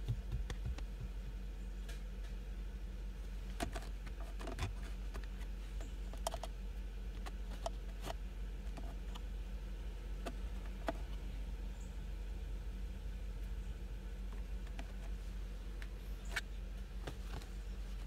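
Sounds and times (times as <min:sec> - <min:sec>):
steady low hum: 0:00.0 - 0:18.0.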